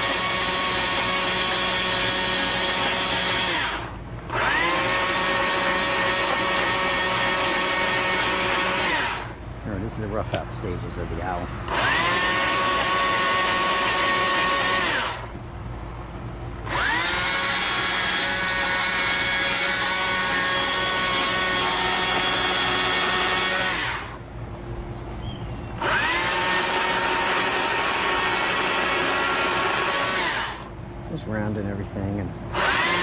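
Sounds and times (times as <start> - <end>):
electric chainsaw whining: 0.0 - 9.4, 11.6 - 15.4, 16.6 - 24.2, 25.8 - 30.7, 32.5 - 33.0.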